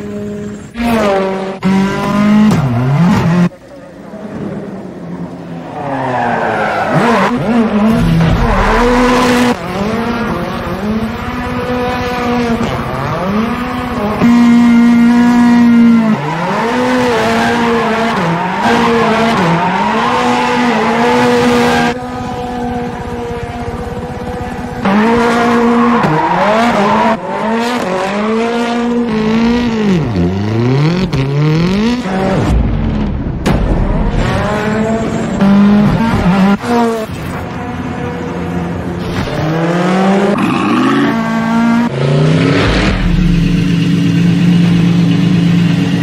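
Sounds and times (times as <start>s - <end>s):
car engine revving hard: 24.4s - 32.5s.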